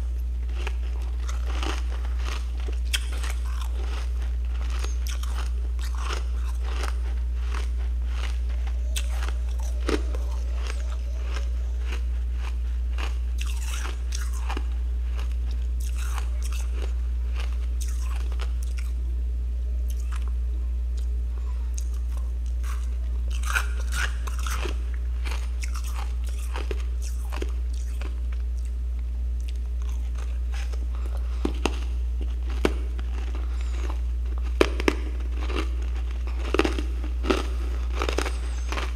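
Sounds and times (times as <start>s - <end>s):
frost crunching when chewed: 0.0s - 19.0s, 19.8s - 38.9s
steady low hum: 0.0s - 38.9s.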